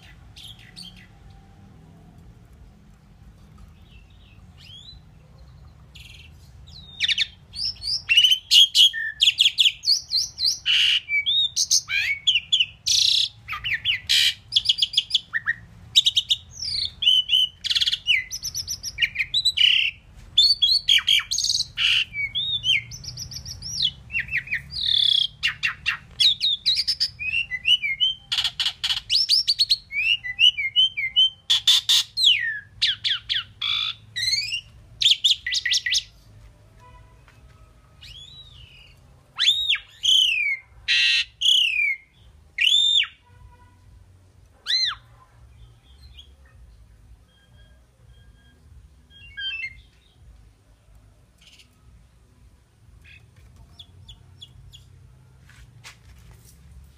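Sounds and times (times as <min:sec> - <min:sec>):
bird singing whistles and chirps: 0:06.0 - 0:36.1, 0:38.0 - 0:43.2, 0:47.3 - 0:50.2.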